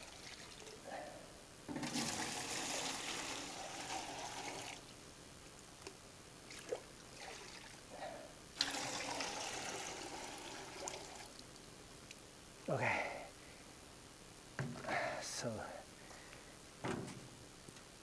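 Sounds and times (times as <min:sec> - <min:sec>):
water running: 0:01.8 - 0:04.8, 0:08.6 - 0:11.4
light knocks: 0:16.8 - 0:17.3.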